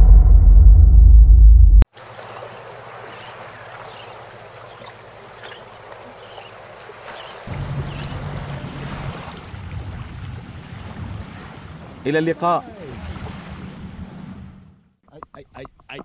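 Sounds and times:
rushing water: 0:01.9 - 0:14.3
motorboat engine hum: 0:01.9 - 0:16.0
high bird chirps: 0:02.1 - 0:08.2.

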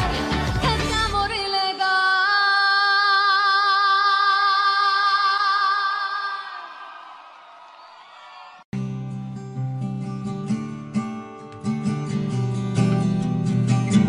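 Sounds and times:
pop band: 0:00.0 - 0:02.2.

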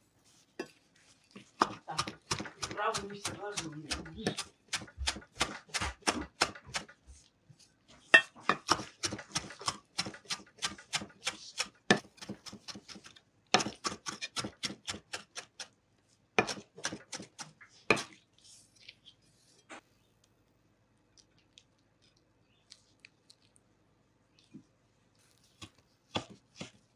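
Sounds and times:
knife chopping on wooden board: 0:08.4 - 0:13.0, 0:16.4 - 0:18.1, 0:25.6 - 0:26.8.

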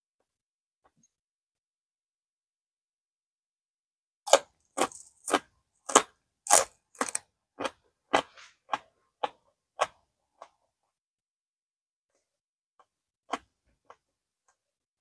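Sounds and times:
crunchy chewing of green onion: 0:04.3 - 0:10.5.

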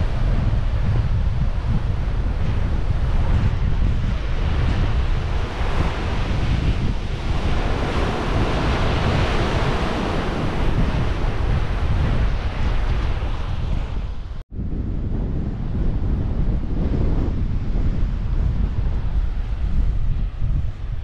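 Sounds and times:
sea surf surging and foaming: 0:00.0 - 0:14.4
wind buffeting microphone: 0:00.0 - 0:21.0.

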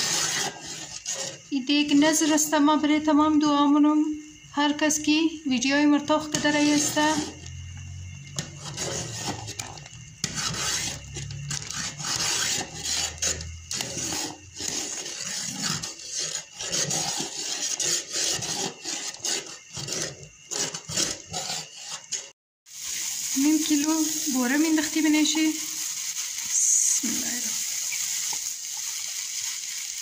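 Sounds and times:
metal spoon scraping a pot: 0:00.0 - 0:02.3, 0:06.0 - 0:22.3.

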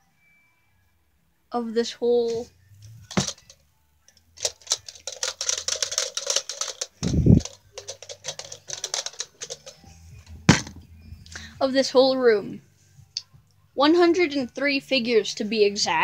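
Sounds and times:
handling clicks and rattles: 0:03.0 - 0:10.8.

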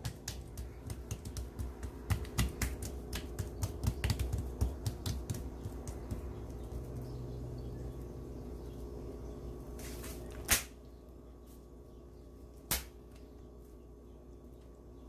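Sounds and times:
hands patting dough: 0:00.0 - 0:07.5.

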